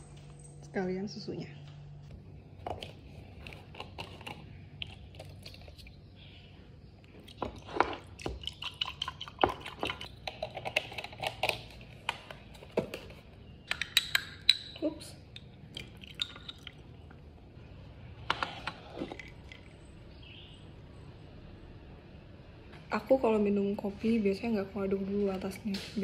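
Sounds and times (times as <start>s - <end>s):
milk pouring: 7.3s - 10.8s, 15.3s - 17.3s, 18.7s - 19.8s.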